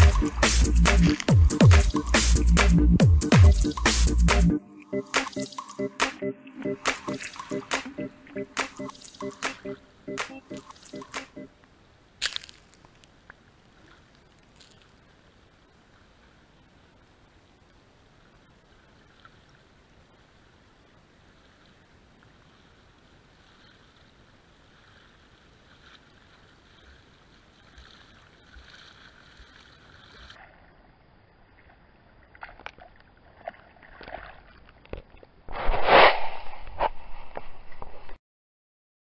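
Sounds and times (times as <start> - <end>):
shallow water washing: 0.0 - 4.4, 5.1 - 11.5, 18.2 - 35.2
feet splashing through water: 6.7 - 8.0, 8.6 - 11.4, 32.2 - 35.2.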